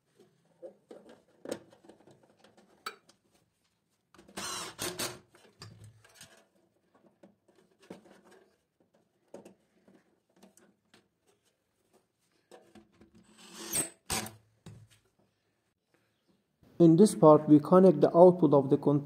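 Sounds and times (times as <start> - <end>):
wire clicks and rustles: 5.2 - 13.3.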